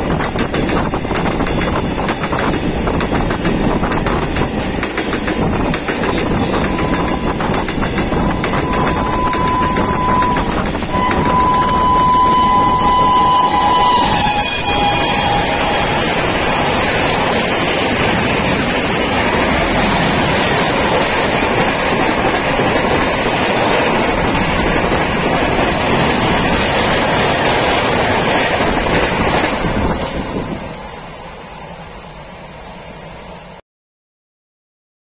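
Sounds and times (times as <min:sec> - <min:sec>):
wind buffeting microphone: 0:00.0 - 0:11.8, 0:14.8 - 0:30.8
train wheels rushing on rail: 0:00.0 - 0:33.6.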